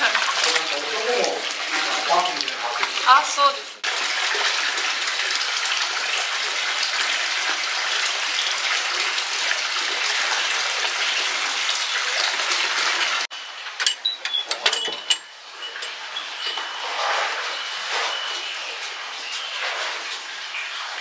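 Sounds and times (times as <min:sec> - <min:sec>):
water pouring into a bath: 0:00.0 - 0:13.3.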